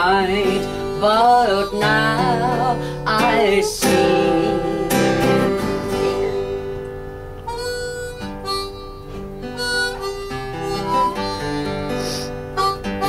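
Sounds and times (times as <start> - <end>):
harmonica melody: 0.0 - 13.0
strummed acoustic guitar: 0.0 - 13.0.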